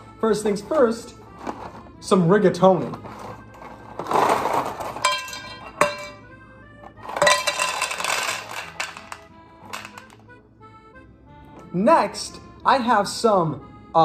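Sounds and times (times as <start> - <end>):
background music: 0.0 - 14.0
dry pasta rattling into pan: 7.1 - 10.1.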